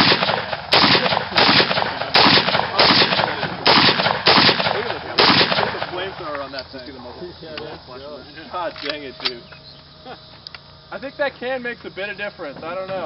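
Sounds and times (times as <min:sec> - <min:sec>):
suppressed rifle shots: 0:00.0 - 0:06.4.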